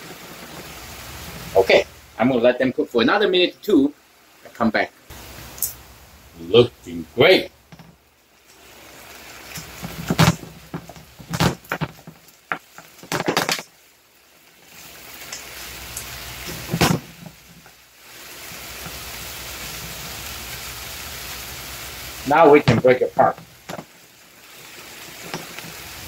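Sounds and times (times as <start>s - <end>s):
meat sizzling in a frying pan: 0.0s - 26.0s
spatulas knocking and scraping pan: 9.5s - 13.7s.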